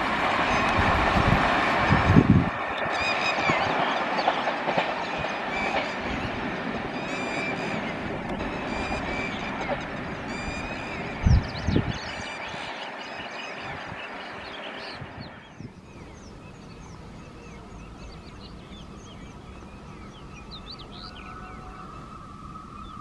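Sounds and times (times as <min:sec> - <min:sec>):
passenger train rumbling: 0:00.0 - 0:23.0
small birds chirping: 0:07.0 - 0:22.0.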